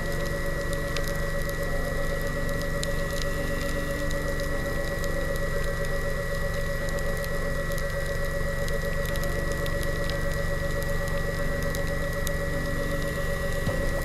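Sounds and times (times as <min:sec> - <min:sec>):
underwater motor whining: 0:09.0 - 0:14.0.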